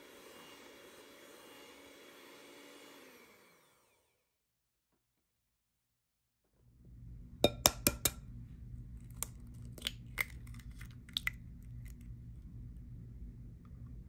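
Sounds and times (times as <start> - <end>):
egg rapping on glass bowl: 7.4 - 8.2
eggshell cracking: 7.4 - 8.2, 9.0 - 12.2.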